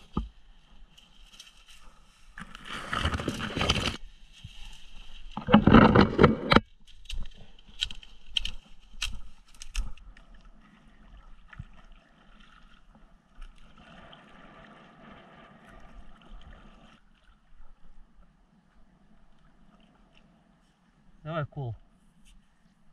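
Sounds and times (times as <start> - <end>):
leaves and branches rustling: 0.0 - 12.7
paddle splashing in water: 2.4 - 17.8.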